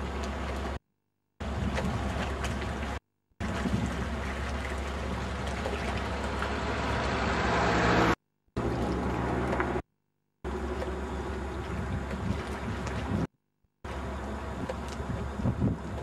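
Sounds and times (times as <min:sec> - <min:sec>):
ship diesel engine drone: 0:00.0 - 0:00.8, 0:01.4 - 0:09.8, 0:10.4 - 0:16.0.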